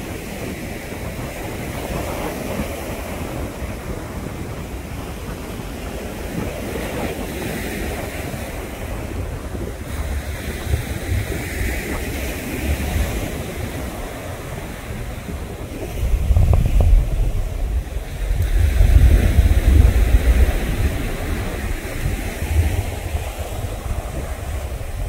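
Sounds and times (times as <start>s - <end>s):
steady rushing noise: 0.0s - 25.0s
wind buffeting microphone: 0.0s - 25.0s.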